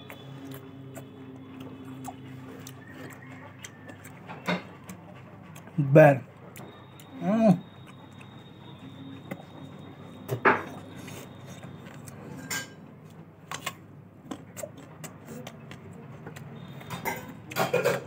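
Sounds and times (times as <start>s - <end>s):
person eating fruit: 0.0s - 5.8s, 14.2s - 18.0s.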